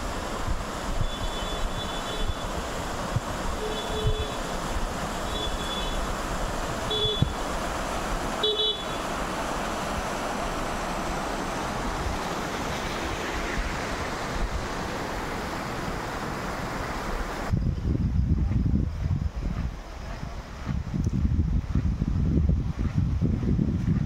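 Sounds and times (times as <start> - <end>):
water rushing over rocks: 0.0 - 17.5
vehicle horn toots: 1.0 - 2.5, 3.6 - 4.4, 5.3 - 6.1, 6.9 - 7.4, 8.4 - 9.0.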